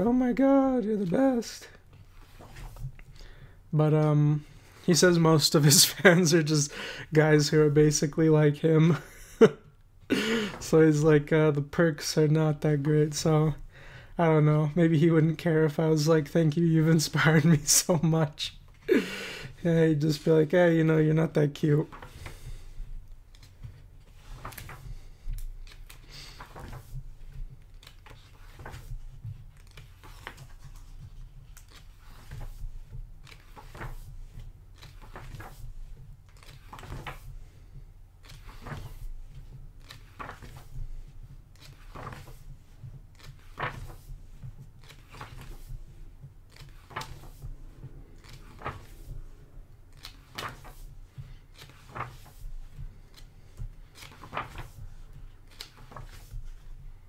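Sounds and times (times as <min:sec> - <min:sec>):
book pages turning: 0:00.0 - 0:03.5, 0:21.2 - 0:57.0.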